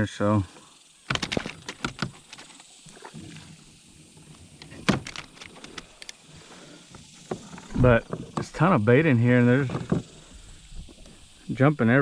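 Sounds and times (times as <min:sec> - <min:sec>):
knocks and clicks of fishing gear: 0:01.1 - 0:02.5, 0:04.6 - 0:06.2, 0:09.7 - 0:10.1.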